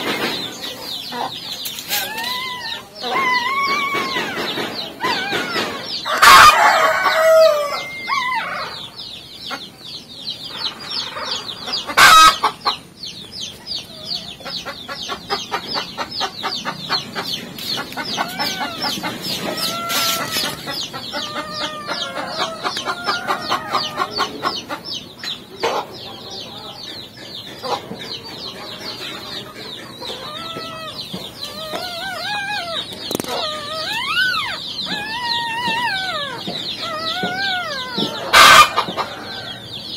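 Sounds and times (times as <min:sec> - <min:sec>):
squeaky rising and falling calls: 0:17.4 - 0:24.4, 0:30.0 - 0:39.4.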